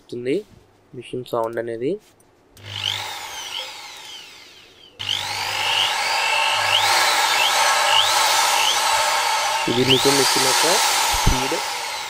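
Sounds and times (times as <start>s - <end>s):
impact drill running: 2.6s - 12.0s.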